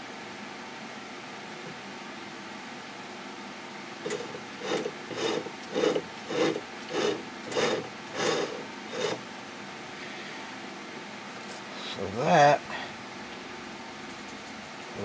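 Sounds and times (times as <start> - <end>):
low machine hum: 0.0 - 15.0
lathe toolbit rasping on metal: 4.0 - 9.2.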